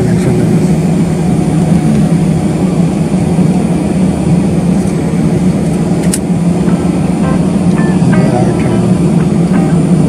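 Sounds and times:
jet engines droning: 0.0 - 10.0.

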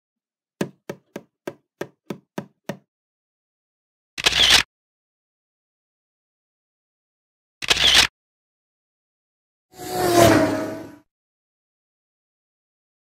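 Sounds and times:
footstep knocks: 0.6 - 2.8
camera shutter and flash burst: 7.6 - 8.1.

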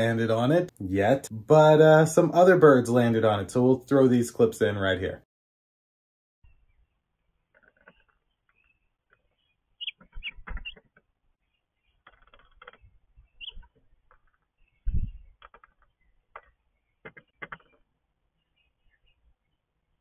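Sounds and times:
short bird chirps: 6.4 - 20.0.

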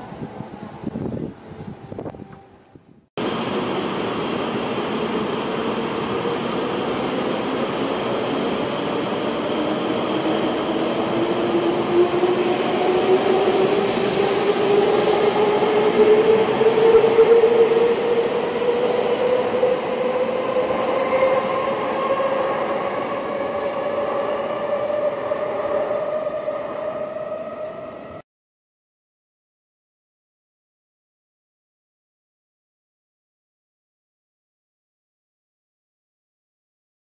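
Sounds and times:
rumble of moving train cars: 0.0 - 28.2.

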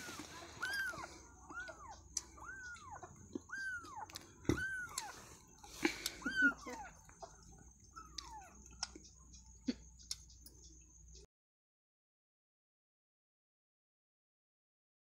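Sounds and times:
kitten mewing: 0.0 - 7.4.

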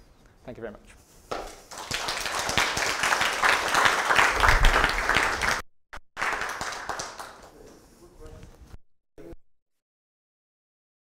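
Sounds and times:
audience applauding: 1.4 - 5.6, 6.2 - 7.6.

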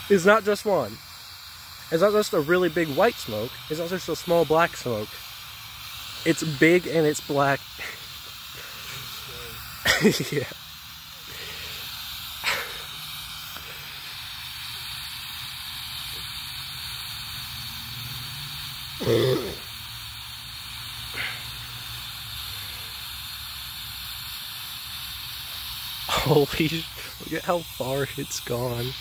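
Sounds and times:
smoke bomb hissing: 0.0 - 29.0
short human vocal sound: 19.0 - 19.6.

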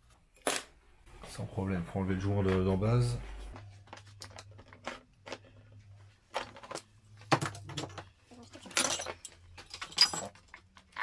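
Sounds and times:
metal parts clinking: 7.4 - 11.0.

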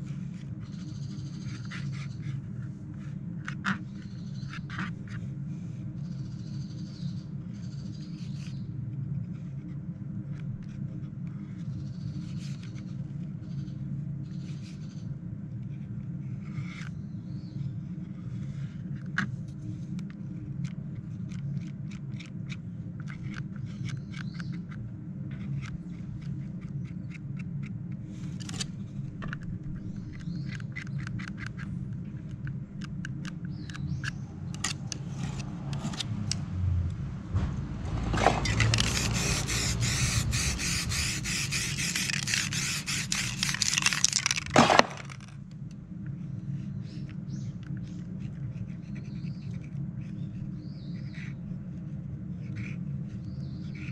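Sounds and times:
palette knife scraping paper: 0.0 - 6.4, 17.6 - 31.8, 33.5 - 36.4, 37.9 - 45.3, 47.8 - 53.9
spray-paint can hissing: 38.4 - 44.4.

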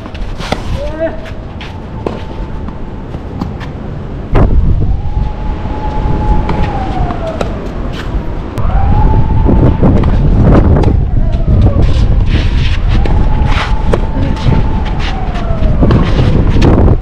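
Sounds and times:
wind buffeting microphone: 0.0 - 17.0
siren wailing: 1.2 - 17.0.

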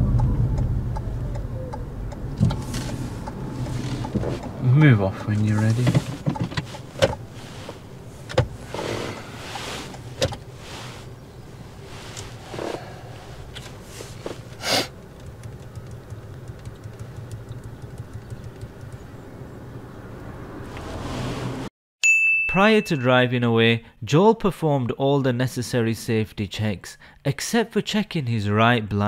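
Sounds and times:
car cabin low hum: 0.0 - 21.7
control clicks and knocks: 5.4 - 7.2.

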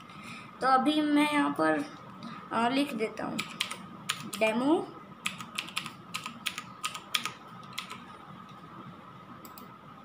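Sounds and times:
keyboard typing: 3.4 - 4.5, 5.2 - 8.1.

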